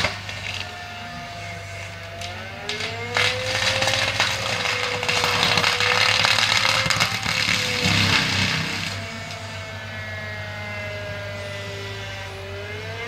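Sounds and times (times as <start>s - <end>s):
hammers crackling through brush: 0.0s - 10.2s
diesel engine hum: 0.0s - 13.0s
forestry mulcher rotor whine: 0.0s - 13.0s.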